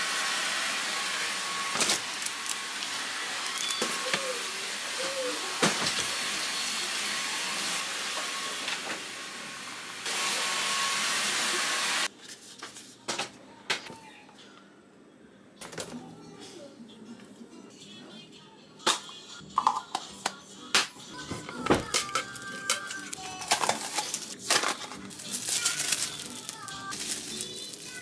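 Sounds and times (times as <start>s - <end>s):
plastic blister packs crinkling: 1.7s - 2.9s, 21.9s - 28.0s.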